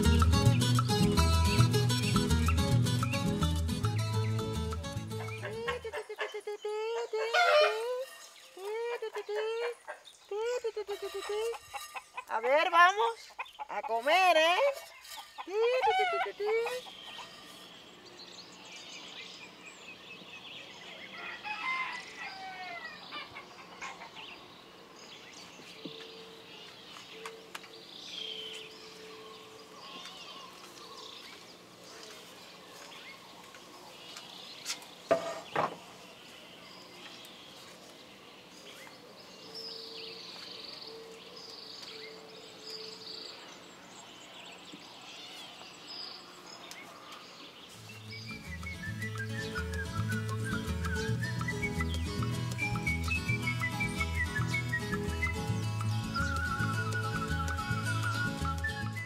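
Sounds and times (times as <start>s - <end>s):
small birds chirping: 0.0s - 21.3s, 22.2s - 59.0s
chickens: 5.1s - 17.6s, 21.1s - 24.3s
rooster crowing: 7.3s - 8.0s, 21.1s - 23.0s.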